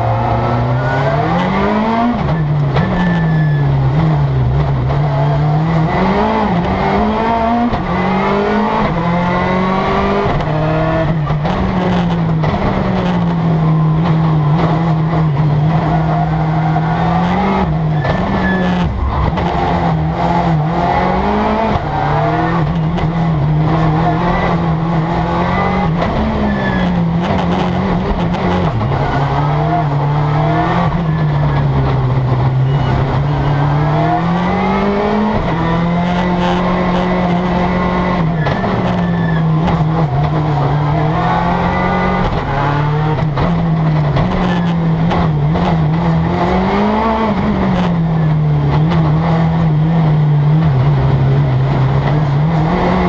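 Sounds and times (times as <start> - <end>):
rally car engine revving: 0.0 - 53.0.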